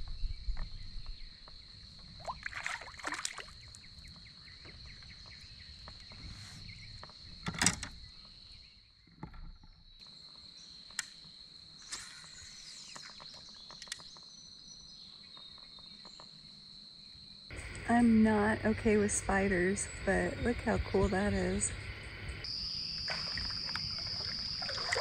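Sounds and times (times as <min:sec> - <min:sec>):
high-pitched insect drone: 0:16.8 - 0:25.0.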